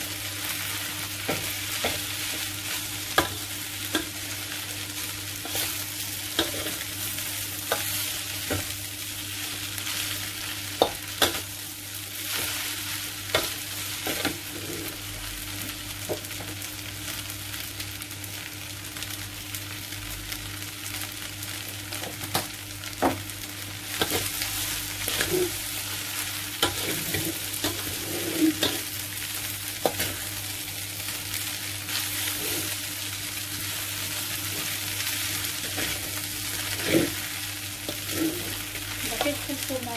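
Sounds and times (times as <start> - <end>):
noodles sizzling in a wok: 0.0 - 39.9
spatula clicking and scraping wok: 1.2 - 8.8, 9.5 - 11.6, 12.2 - 15.0, 23.9 - 30.5, 34.4 - 39.7.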